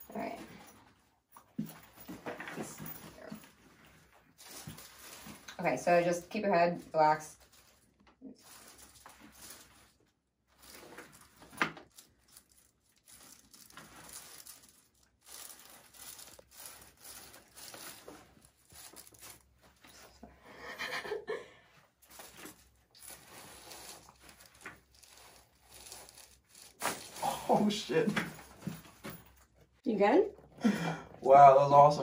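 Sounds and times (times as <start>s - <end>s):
fabric rustling: 0.2s - 20.3s, 21.8s - 29.7s.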